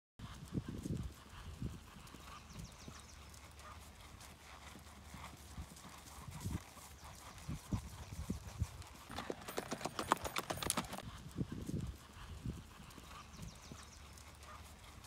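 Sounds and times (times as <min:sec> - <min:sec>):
horse hoofbeats on grass: 0:00.2 - 0:15.0.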